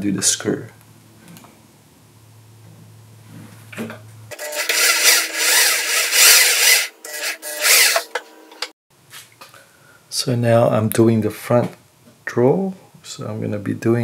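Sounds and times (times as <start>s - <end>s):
electric drill whining: 4.3s - 8.2s.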